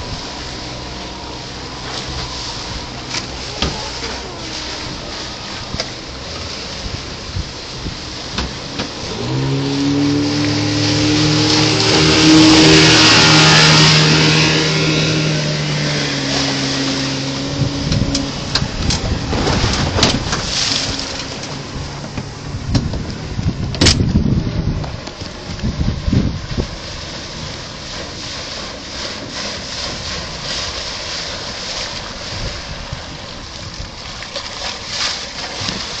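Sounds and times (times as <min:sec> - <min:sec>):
outboard boat engine running: 0:00.0 - 0:36.0
water rushing: 0:00.0 - 0:36.0
wind rushing: 0:09.1 - 0:27.4.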